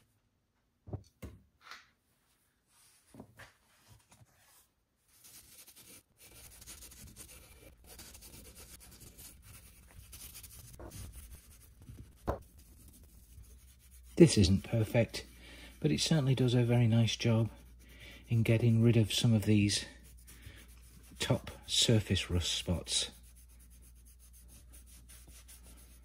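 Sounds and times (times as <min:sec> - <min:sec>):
scrubbing chrome with paste: 0:05.2 - 0:26.0.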